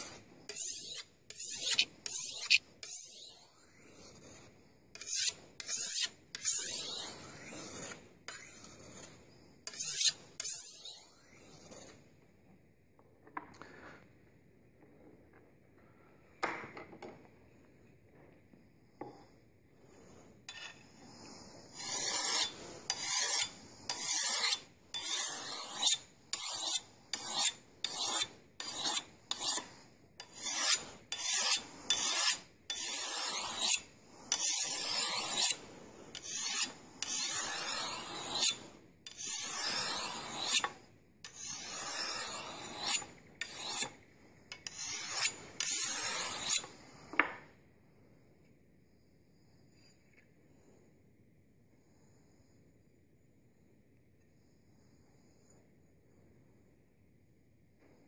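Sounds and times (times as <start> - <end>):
sharpening stone scraping a blade: 0.0 - 12.0, 19.1 - 47.4.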